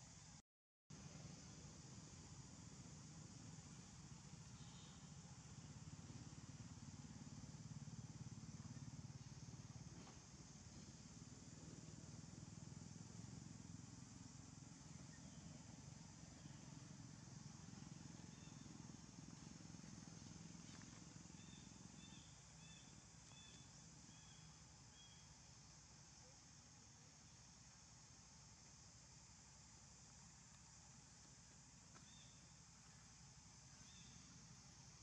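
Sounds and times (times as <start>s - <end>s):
faint high chirps: 3.7s - 5.7s, 14.8s - 18.9s.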